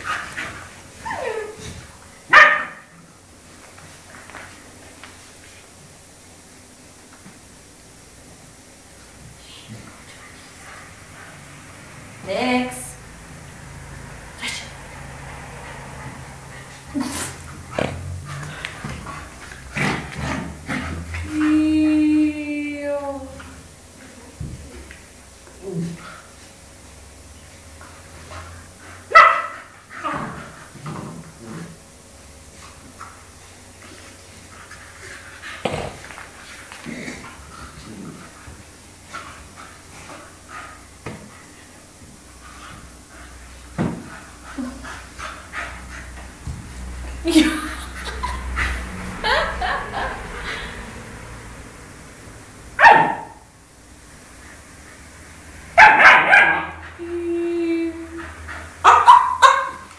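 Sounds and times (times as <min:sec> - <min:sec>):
puppies barking: 0:02.3 - 0:02.9, 0:29.1 - 0:29.6, 0:52.8 - 0:53.4, 0:55.8 - 0:56.8, 0:58.8 - 0:59.9.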